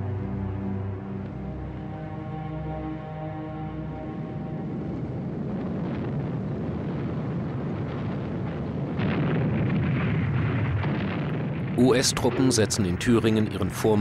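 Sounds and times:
distant shelling rumble: 0:05.1 - 0:14.0
sharp explosion cracks: 0:05.7 - 0:14.0.

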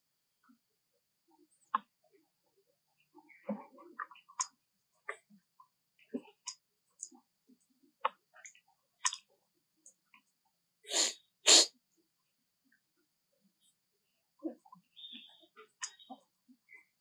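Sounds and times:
monkey sneeze-like snorts: 0:10.9 - 0:11.7.

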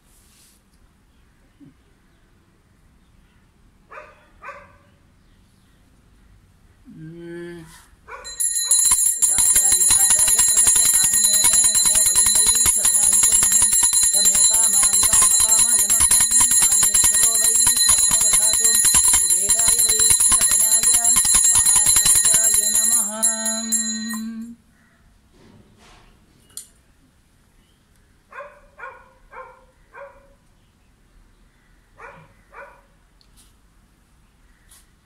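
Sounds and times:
hand bell ringing rapidly: 0:08.3 - 0:24.5.

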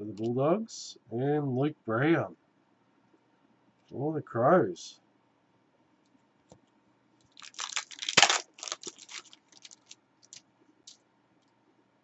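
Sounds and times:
cards shuffling and scraping: 0:07.4 - 0:10.0.

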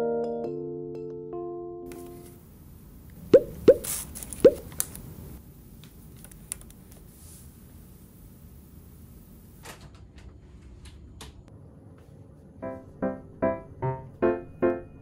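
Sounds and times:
piano music: 0:12.6 - 0:15.0.

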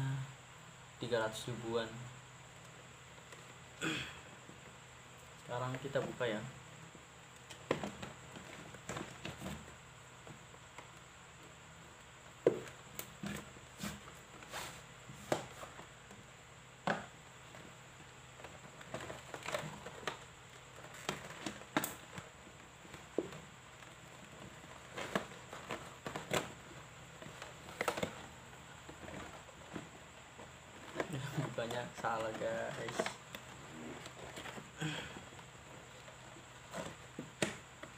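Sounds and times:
cardboard box rustling and scraping: 0:12.5 - 0:16.0, 0:18.5 - 0:37.9.

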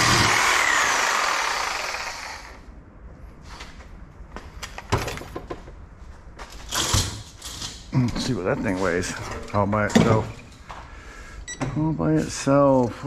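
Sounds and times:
reciprocating saw winding down: 0:00.0 - 0:02.6.

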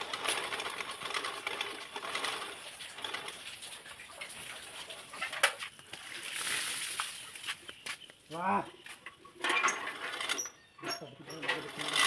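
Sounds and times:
rope pulley creaking: 0:00.0 - 0:05.6, 0:09.4 - 0:12.0
rope running over pulley: 0:00.0 - 0:07.0.

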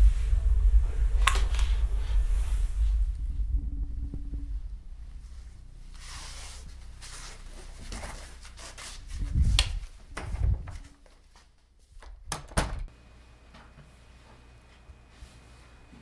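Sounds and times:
heavy thumps: 0:00.6 - 0:08.5
footsteps in a room: 0:05.6 - 0:12.2, 0:13.4 - 0:16.0.

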